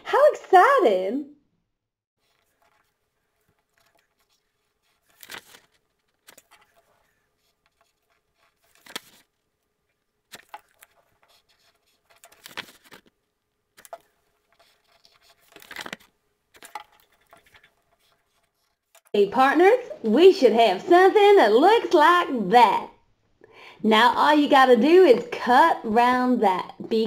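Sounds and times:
pencil scratching on card: 0:02.2 - 0:09.2, 0:10.3 - 0:13.0, 0:13.8 - 0:15.6, 0:16.6 - 0:19.1.

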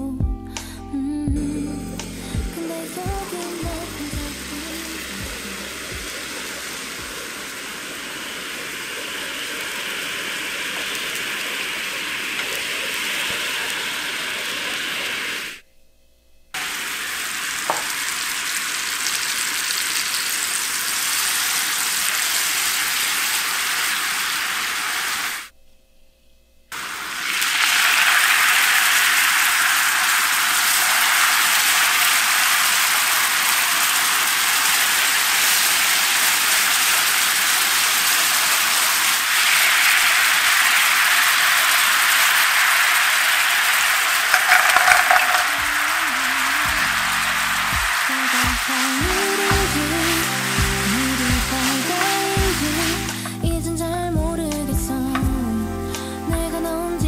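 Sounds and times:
syrup bubbling and sizzling in a pan: 0:16.6 - 0:25.5, 0:26.7 - 0:53.4.

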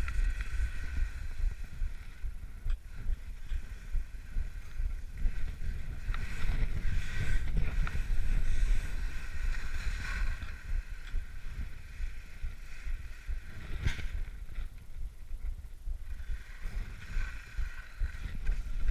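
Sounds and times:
skis sliding over snow: 0:00.0 - 0:14.8, 0:16.1 - 0:18.9
wind buffeting microphone: 0:00.0 - 0:18.9.

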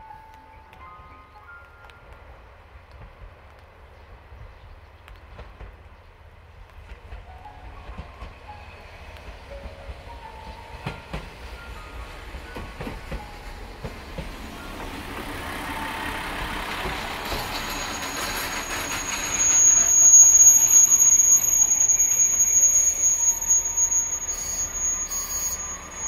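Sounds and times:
diesel railcar running: 0:00.1 - 0:26.0
high brake squeal: 0:16.9 - 0:26.0.

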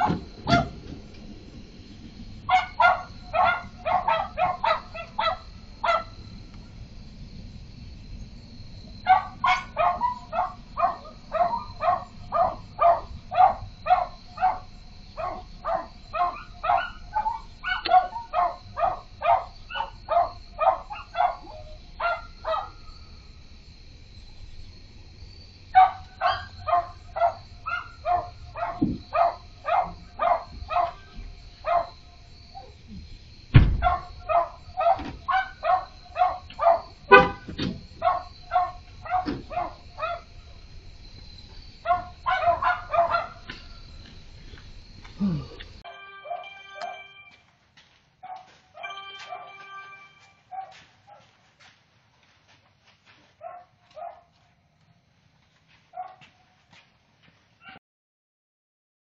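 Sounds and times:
dog barking: 0:00.0 - 0:00.8, 0:02.5 - 0:06.2, 0:09.0 - 0:22.8, 0:25.8 - 0:32.0, 0:33.8 - 0:40.4, 0:41.8 - 0:43.7, 0:48.2 - 0:49.6, 0:50.5 - 0:51.3, 0:53.4 - 0:54.3, 0:56.0 - 0:56.3.

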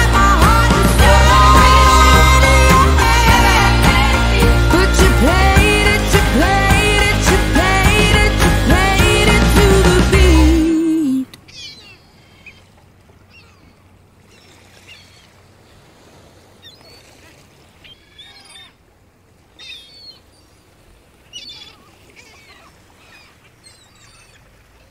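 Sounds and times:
faint sea wash: 0:00.0 - 0:24.9
birds giving high wavering cries: 0:11.4 - 0:15.4, 0:16.6 - 0:18.8, 0:19.5 - 0:24.6.

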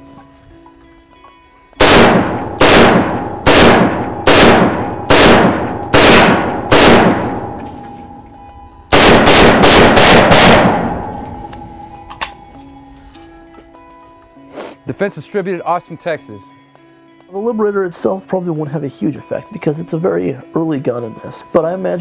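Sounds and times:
faint background music: 0:00.0 - 0:22.0
rifle shots ringing out: 0:01.8 - 0:08.0, 0:08.9 - 0:11.4.

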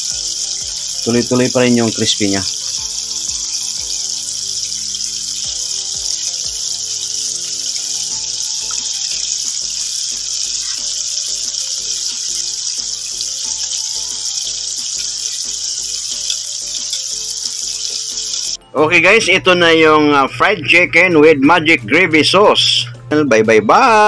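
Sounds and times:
oil sizzling while deep-frying: 0:00.0 - 0:18.6
faint background music: 0:00.0 - 0:24.0.

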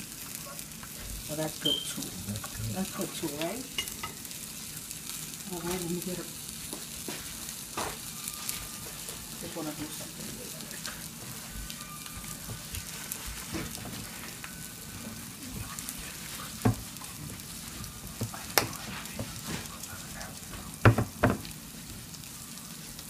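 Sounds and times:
food sizzling: 0:00.0 - 0:23.0
plate knocks: 0:20.8 - 0:21.4.

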